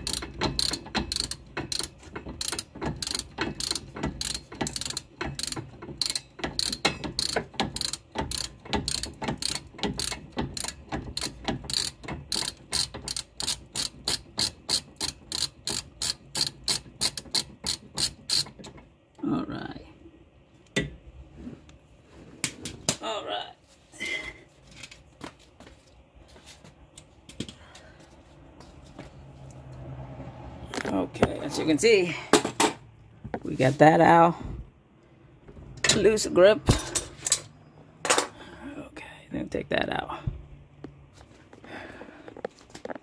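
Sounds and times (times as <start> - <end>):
ratcheting wrench clicking: 0.0 - 18.8.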